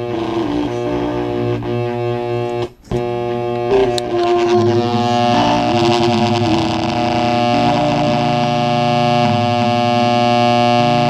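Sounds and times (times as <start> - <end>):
harsh noise and distortion: 0.0 - 11.0
music through a speaker: 0.0 - 11.0.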